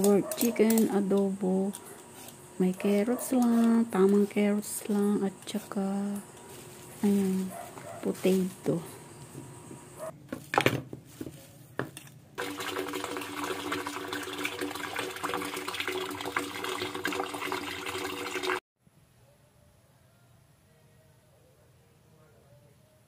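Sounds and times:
plastic bag rustling: 0:06.4 - 0:08.8
tap water running into basin: 0:12.4 - 0:18.6.

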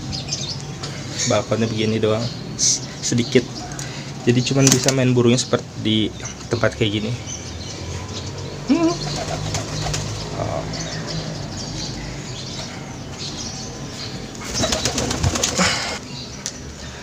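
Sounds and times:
pigeons cooing: 0:07.2 - 0:16.3
loud wing flapping: 0:09.0 - 0:10.1, 0:14.5 - 0:15.8.

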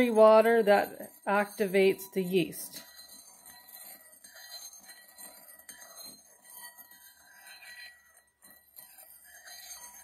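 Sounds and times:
spoon stirring in ceramic bowl: 0:00.0 - 0:10.0.

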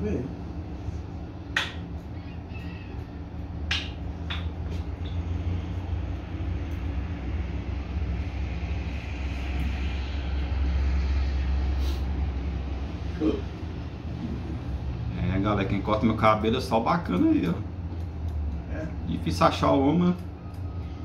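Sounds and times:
low steady rumble: 0:00.0 - 0:21.0
scissors snipping hair: 0:16.7 - 0:20.8.

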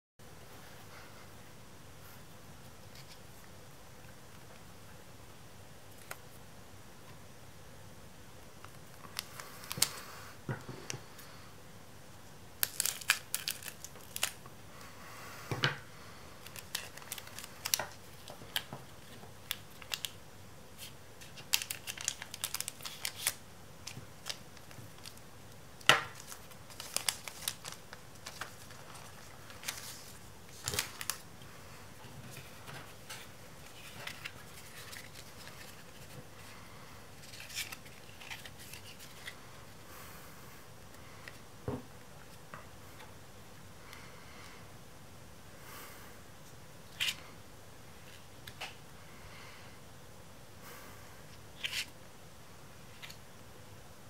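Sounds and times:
foil wrapper crinkling: 0:12.6 - 0:14.4, 0:16.4 - 0:20.2, 0:20.8 - 0:25.2, 0:26.0 - 0:31.2, 0:33.6 - 0:36.5, 0:37.1 - 0:39.4.

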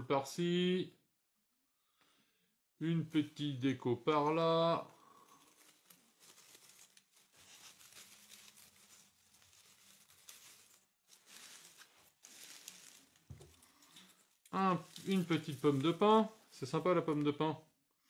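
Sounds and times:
leaves and tinsel rustling: 0:04.2 - 0:17.5.

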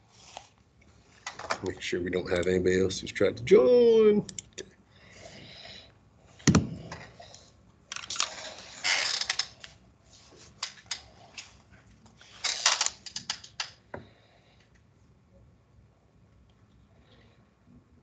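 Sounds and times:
loud thump: 0:06.5 - 0:07.0.

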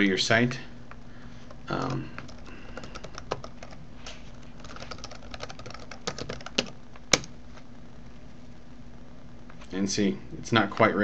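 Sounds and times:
computer keyboard typing: 0:02.2 - 0:03.8, 0:04.6 - 0:07.3.

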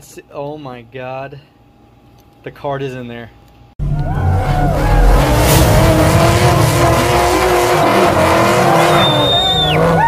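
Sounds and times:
engine revving high: 0:03.8 - 0:10.0.

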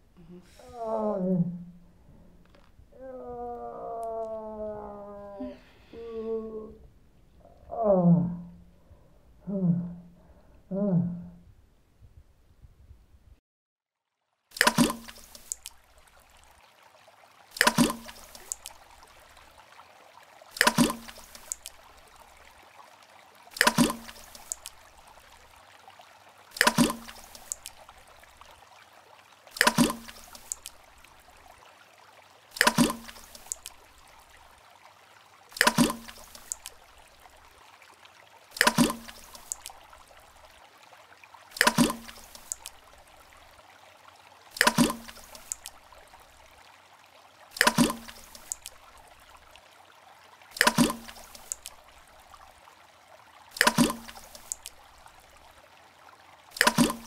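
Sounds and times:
object plopping into water: 0:14.6 - 0:15.8, 0:17.5 - 0:18.8, 0:20.5 - 0:21.8, 0:23.5 - 0:24.8, 0:26.5 - 0:27.8, 0:29.5 - 0:30.8, 0:32.5 - 0:33.8, 0:35.5 - 0:36.7, 0:38.5 - 0:39.8, 0:41.5 - 0:42.8, 0:44.5 - 0:45.8, 0:47.5 - 0:48.8, 0:50.5 - 0:51.8, 0:53.5 - 0:54.8, 0:56.5 - 0:57.0.

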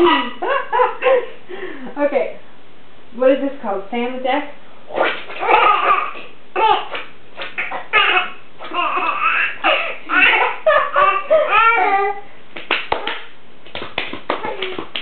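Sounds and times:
baby laughing: 0:05.0 - 0:12.3.

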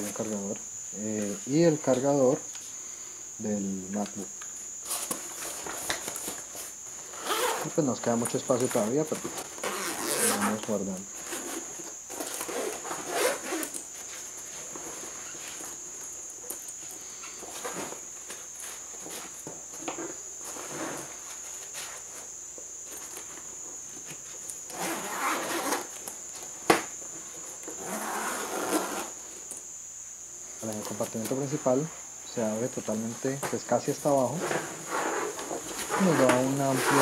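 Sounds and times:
backpack zipping: 0:07.2 - 0:07.7, 0:09.5 - 0:10.6, 0:12.4 - 0:13.8, 0:24.7 - 0:25.9, 0:27.8 - 0:29.2.

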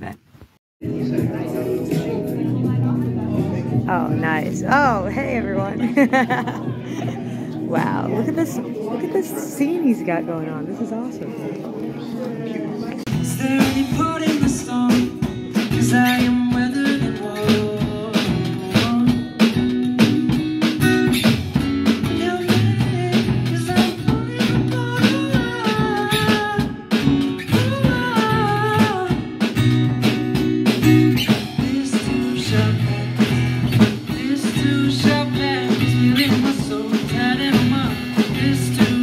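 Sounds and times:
acoustic guitar: 0:00.0 - 0:39.0
man singing: 0:13.1 - 0:20.4, 0:21.9 - 0:29.6, 0:31.2 - 0:39.0
drum and cymbal hits: 0:13.1 - 0:39.0.

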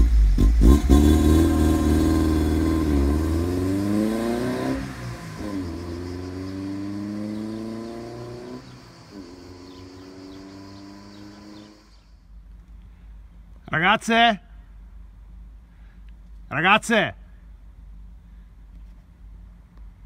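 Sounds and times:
car engine accelerating through gears: 0:00.0 - 0:12.0.

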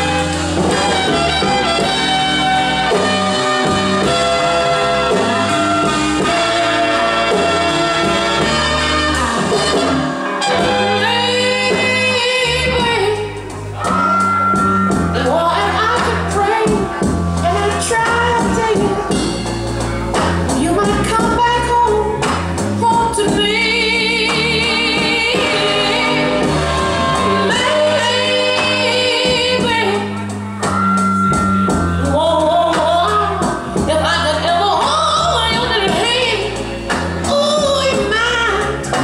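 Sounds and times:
instrumental backing music: 0:00.0 - 0:39.0
person singing with vibrato: 0:08.7 - 0:19.3, 0:22.8 - 0:30.2.

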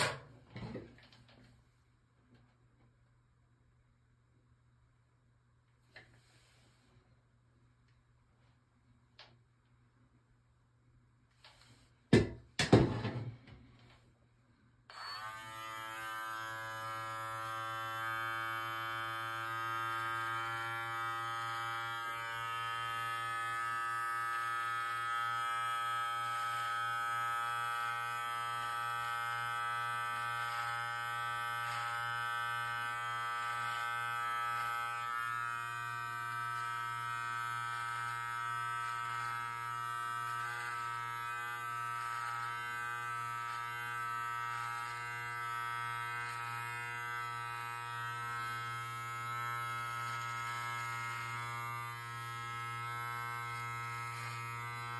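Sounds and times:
beard trimmer buzzing: 0:14.9 - 0:54.9.

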